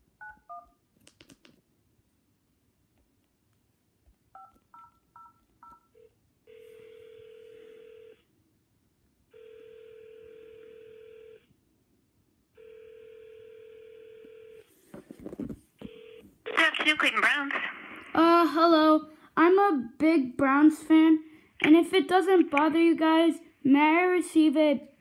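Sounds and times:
phone ringback tone: 0:04.4 - 0:08.2, 0:09.3 - 0:11.4, 0:12.6 - 0:14.6.

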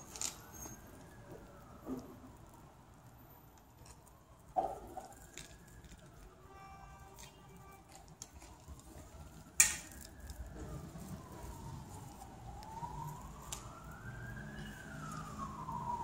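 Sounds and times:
emergency siren wailing: 0:00.0 - 0:16.0.

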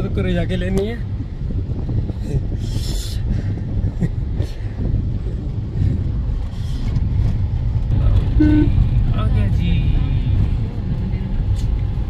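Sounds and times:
car road and engine rumble: 0:00.0 - 0:12.0
short beep: 0:08.3 - 0:08.8.

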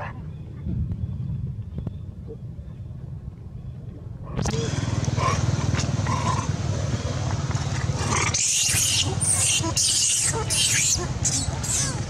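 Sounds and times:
steady low rumble: 0:00.0 - 0:12.0
monkeys squealing and screeching: 0:07.9 - 0:12.0.

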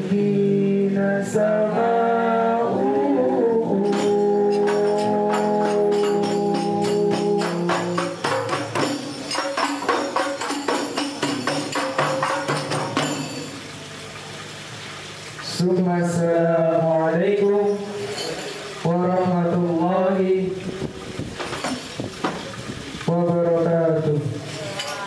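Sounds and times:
frame drums struck by hand: 0:03.8 - 0:13.7, 0:21.2 - 0:22.7.

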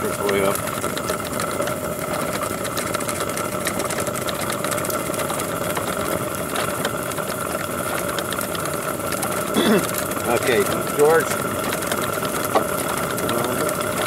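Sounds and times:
model steam engine clatter: 0:00.0 - 0:14.0.

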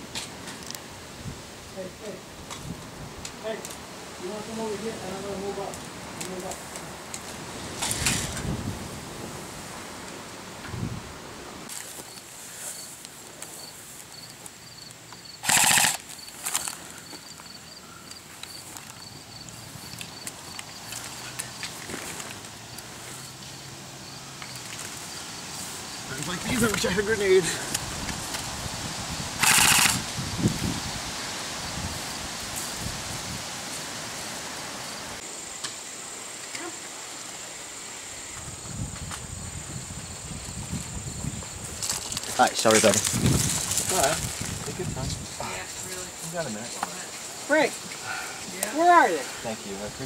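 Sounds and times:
high-pitched insect drone: 0:13.6 - 0:21.2, 0:29.4 - 0:30.4
airsoft rifle full-auto burst: 0:15.4 - 0:16.1, 0:29.4 - 0:30.0
sharp clicks: 0:15.4 - 0:16.8, 0:29.4 - 0:30.0.

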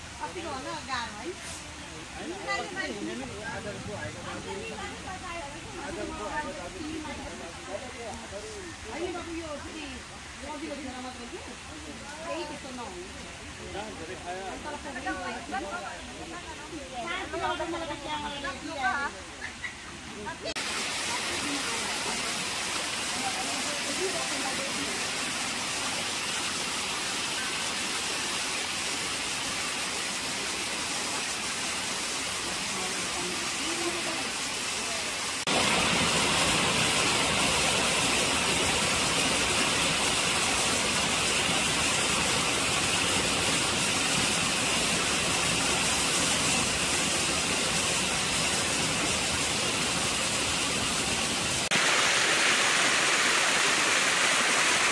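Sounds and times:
stream water rushing over rocks: 0:20.0 - 0:54.9.

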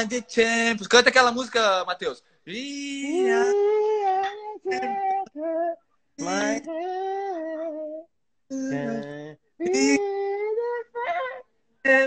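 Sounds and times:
high voice singing: 0:03.1 - 0:11.4.

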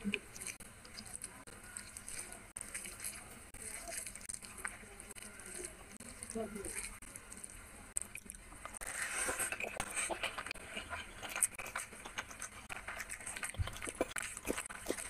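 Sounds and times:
chewing: 0:00.0 - 0:15.0
fingers squishing rice and curry: 0:00.0 - 0:15.0.

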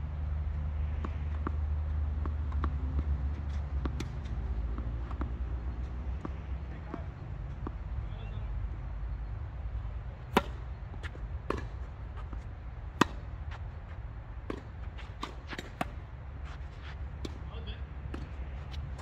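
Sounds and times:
tennis ball pops off rackets: 0:10.3 - 0:12.4, 0:13.0 - 0:13.3.

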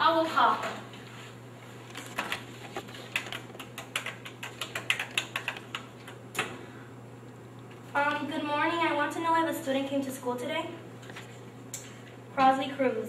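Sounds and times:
telephone keys clicking: 0:03.1 - 0:05.9.

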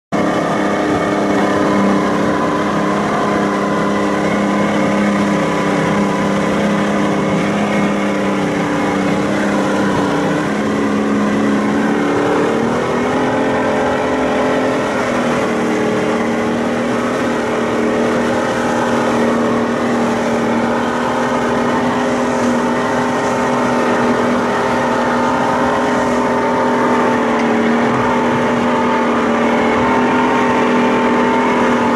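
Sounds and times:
churning wake rushing: 0:00.1 - 0:31.9
speedboat engine running: 0:00.1 - 0:31.9.

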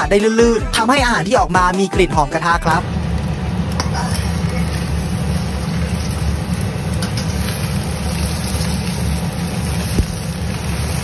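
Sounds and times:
low machine hum: 0:02.8 - 0:11.0.

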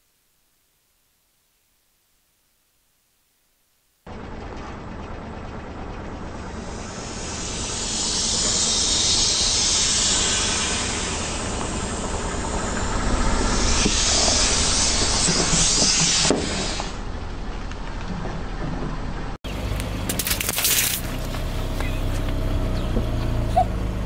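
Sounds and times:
loud hissing rush: 0:06.5 - 0:17.0.

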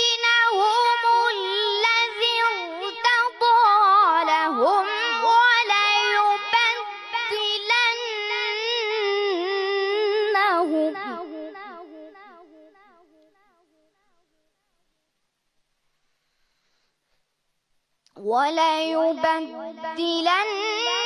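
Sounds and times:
solo voice reciting melodically: 0:00.0 - 0:12.4.

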